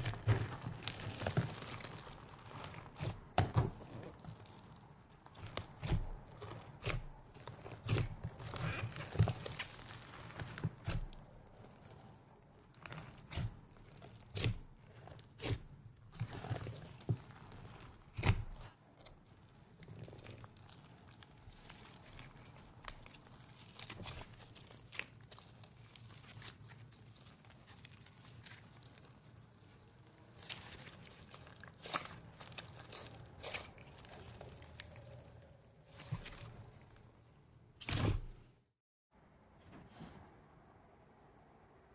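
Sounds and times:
soft crackle: 0:00.0 - 0:38.0
sticky slime pops and crunches: 0:05.3 - 0:11.2, 0:12.8 - 0:18.7.

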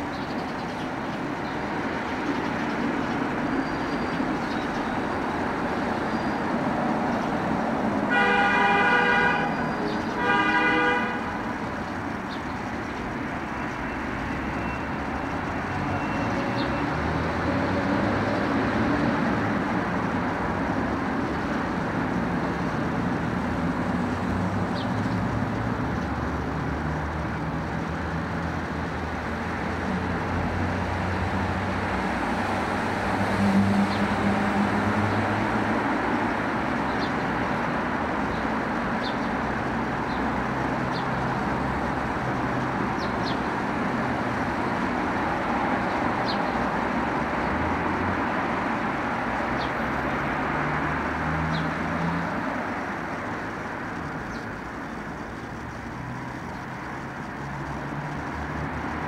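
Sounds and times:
road traffic noise: 0:00.0 - 0:59.0
vehicles passing: 0:00.0 - 0:59.0
car horn tooting: 0:08.1 - 0:11.4.

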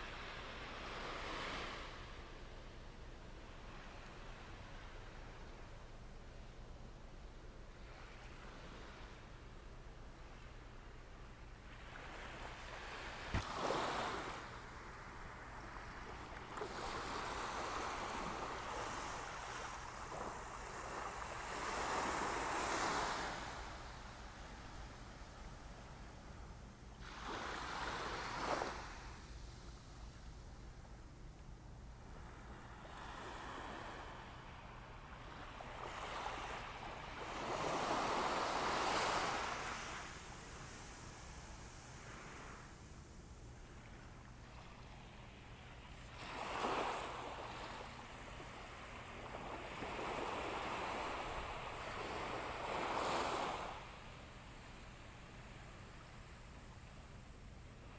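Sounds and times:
small waves washing on sand: 0:11.6 - 0:26.2, 0:27.0 - 0:29.8, 0:32.1 - 0:43.0, 0:43.6 - 0:56.3.

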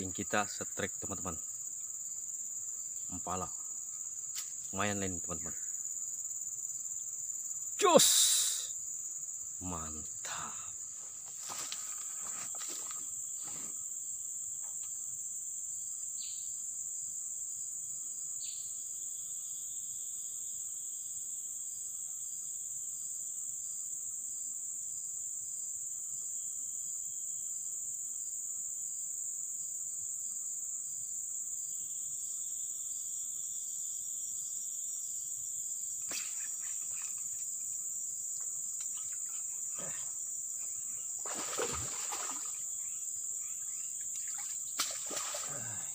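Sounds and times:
high-pitched insect drone: 0:00.0 - 0:14.0, 0:31.6 - 0:45.9.

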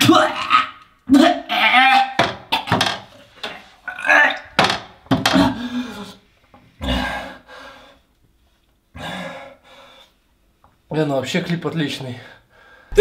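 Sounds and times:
man retching and gagging: 0:00.0 - 0:06.2.

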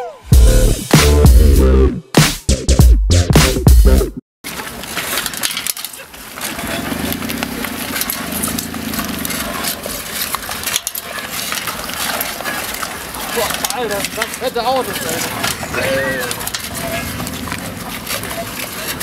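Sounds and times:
street noise: 0:00.0 - 0:19.0
bicycle rattling on asphalt: 0:04.4 - 0:19.0.

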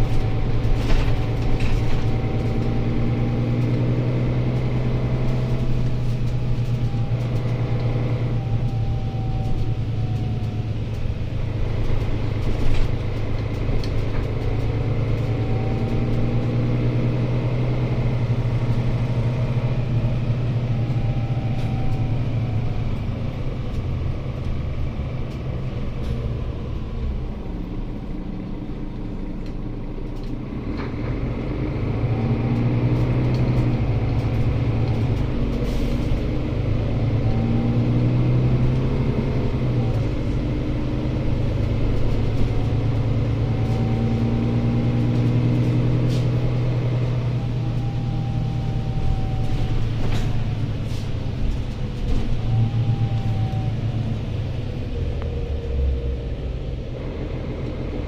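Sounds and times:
bus engine drone with whine: 0:00.0 - 0:58.0.

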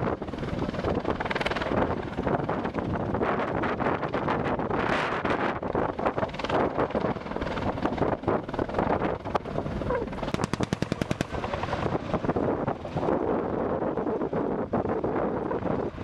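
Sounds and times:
helicopter rotor: 0:00.0 - 0:16.0
wind on microphone: 0:00.0 - 0:16.0
sharp cracks: 0:10.2 - 0:11.4
automatic gunfire burst: 0:10.3 - 0:11.4.

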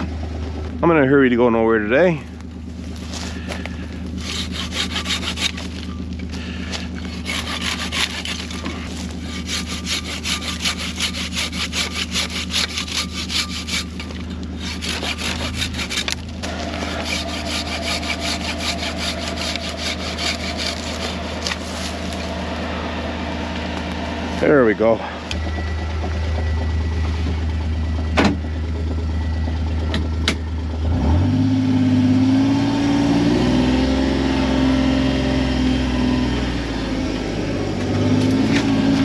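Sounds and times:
engine idling: 0:00.0 - 0:31.3
saw rasping through branch: 0:03.4 - 0:05.9, 0:06.7 - 0:22.3.

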